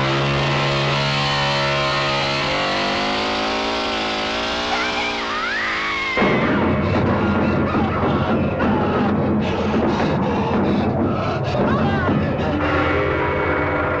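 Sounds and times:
chainsaw engine running: 0:00.0 - 0:13.5
distorted horror film music: 0:00.0 - 0:14.0
high wailing tone: 0:12.6 - 0:14.0.

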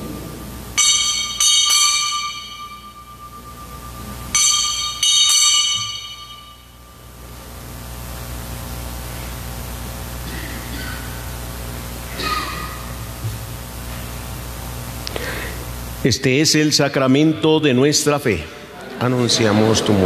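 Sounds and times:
altar bells ringing: 0:00.4 - 0:07.3.

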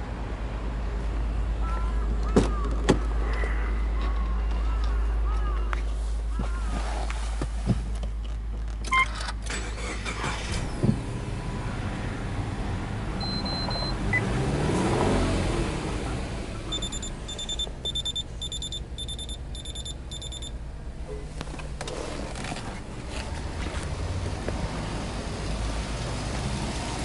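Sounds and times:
short high beeps: 0:13.2 - 0:13.9, 0:16.7 - 0:20.5
car engine idling: 0:16.0 - 0:24.5.

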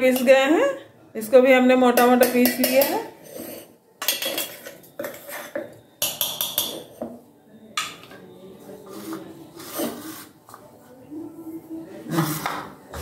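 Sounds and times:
metal spoon scraping steel jar: 0:02.0 - 0:07.0, 0:08.8 - 0:10.4.

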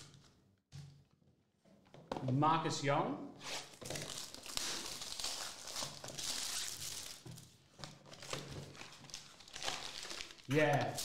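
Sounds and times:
shrink-wrap crinkling and tearing: 0:03.4 - 0:11.0.

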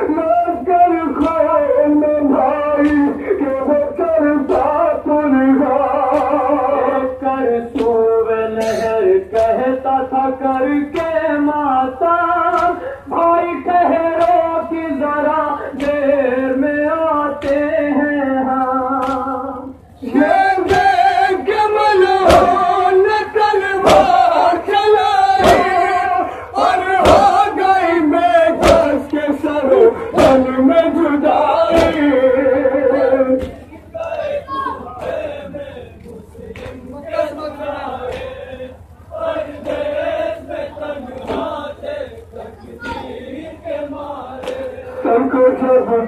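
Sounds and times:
men chanting in unison: 0:00.0 - 0:46.0
hands slapping chests: 0:12.5 - 0:12.8, 0:19.0 - 0:19.3.

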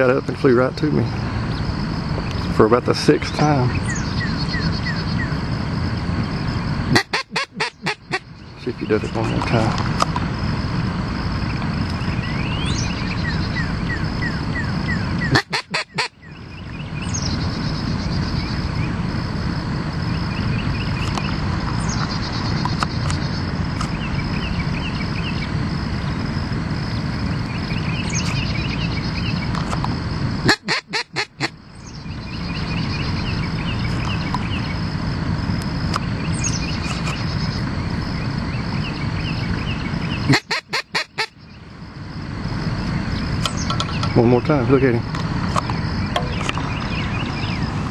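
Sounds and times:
steady background noise: 0:00.0 - 0:47.9
duck call quacks: 0:06.9 - 0:08.2, 0:15.3 - 0:16.1, 0:30.4 - 0:31.5, 0:40.3 - 0:41.3.

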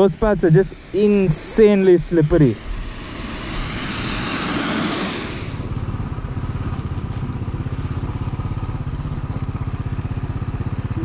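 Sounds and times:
motorcycle engine running: 0:00.0 - 0:11.0
car tyres hissing on wet road: 0:02.4 - 0:10.6.

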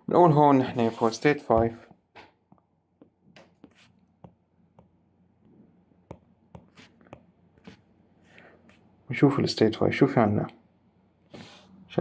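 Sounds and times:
stylus tapping on tablet screen: 0:02.5 - 0:07.8.

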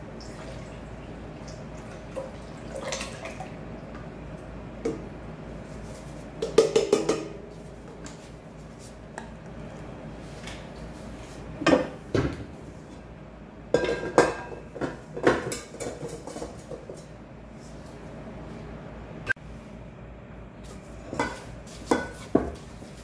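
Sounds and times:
metal bowl clanking: 0:13.7 - 0:16.6.

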